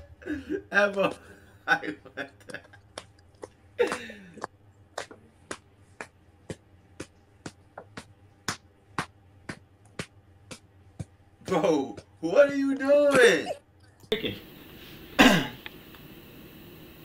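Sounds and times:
sharp rhythmic clicks: 0:02.4 - 0:12.2.

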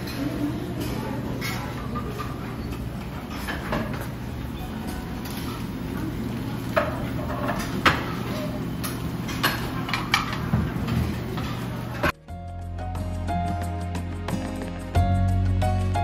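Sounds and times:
faint voices: 0:00.0 - 0:08.8
dishes and cutlery clinking: 0:00.0 - 0:12.2.

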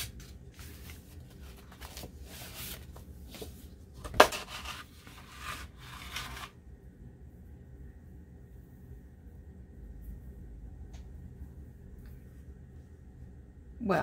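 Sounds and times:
paper rustling and crinkling: 0:00.0 - 0:06.5.

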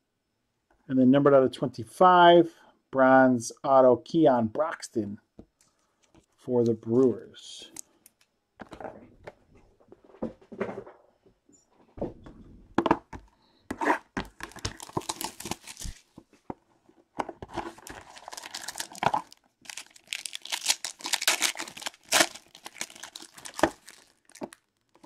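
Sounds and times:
foil wrapper crinkling and tearing: 0:14.4 - 0:16.1, 0:17.6 - 0:25.0.

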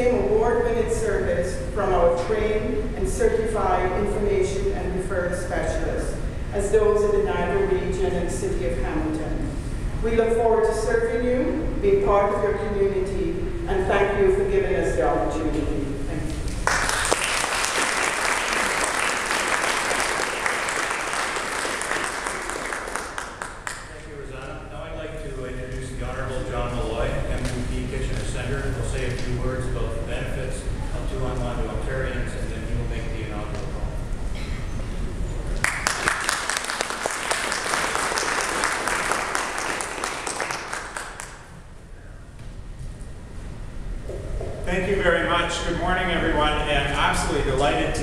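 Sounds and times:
audience applauding: 0:16.6 - 0:24.0, 0:35.6 - 0:41.5.

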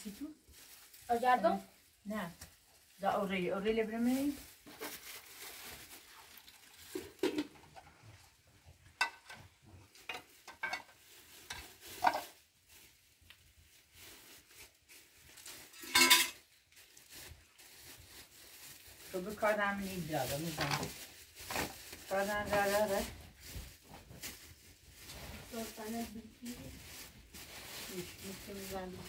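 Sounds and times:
metal pots clinking: 0:09.0 - 0:09.4, 0:10.0 - 0:11.0, 0:15.7 - 0:16.4.

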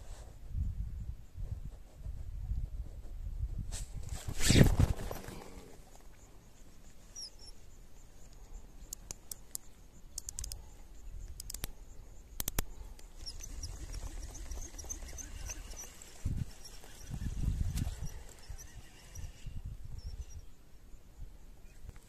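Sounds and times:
wind rumble on microphone: 0:00.0 - 0:05.6, 0:13.2 - 0:20.6
microphone handling noise: 0:02.7 - 0:05.6
fishing reel clicking: 0:10.2 - 0:10.6, 0:11.4 - 0:11.7, 0:12.4 - 0:12.7.

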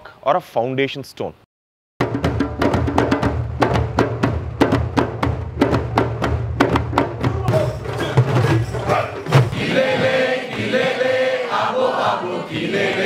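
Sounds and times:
djembe drums: 0:02.0 - 0:10.8
crowd chanting: 0:07.3 - 0:13.0.

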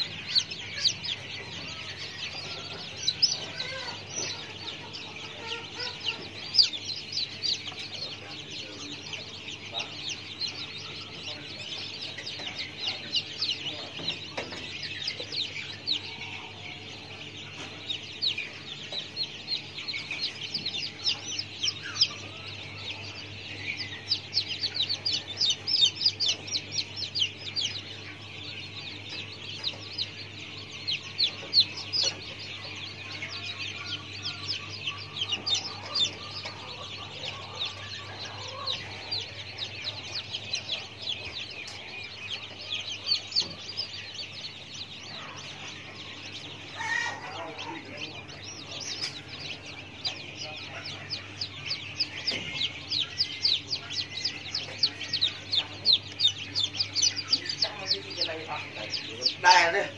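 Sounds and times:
birds chirping: 0:00.0 - 0:59.9.

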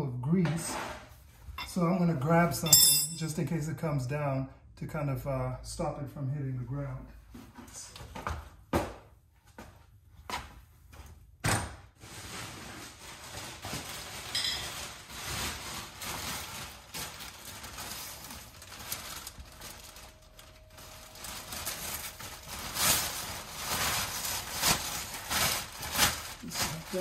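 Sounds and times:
plastic sheeting rustling: 0:11.9 - 0:27.0.

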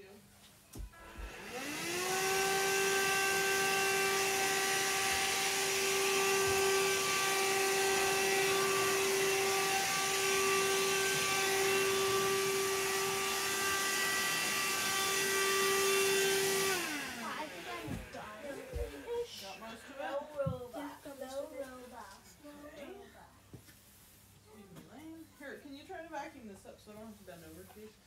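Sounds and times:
vacuum cleaner motor running: 0:00.8 - 0:20.6.

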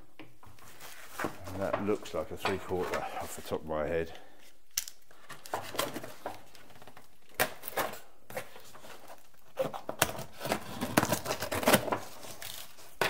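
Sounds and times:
packing tape tearing: 0:04.7 - 0:13.0.

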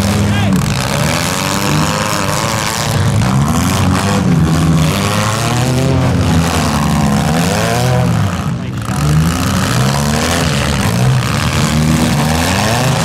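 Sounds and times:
car engines revving: 0:00.0 - 0:13.0.

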